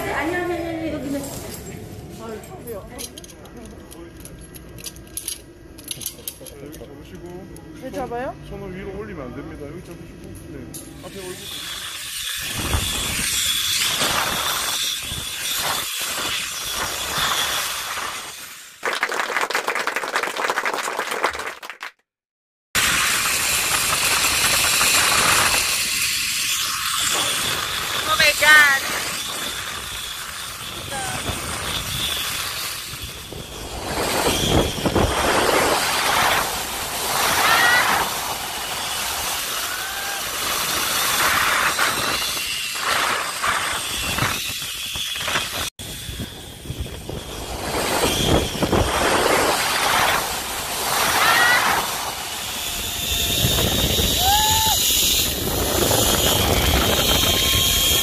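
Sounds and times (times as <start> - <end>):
zipline trolley on steel cable: 0.0 - 18.9, 22.8 - 58.0
wind on microphone: 12.4 - 18.2, 22.8 - 58.0
applause: 18.8 - 22.1.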